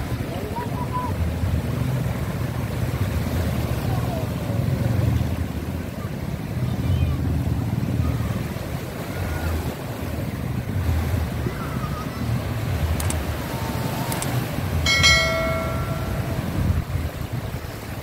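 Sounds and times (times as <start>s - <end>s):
small waves washing in: 0.0s - 18.0s
high pitched tone: 14.9s - 16.7s.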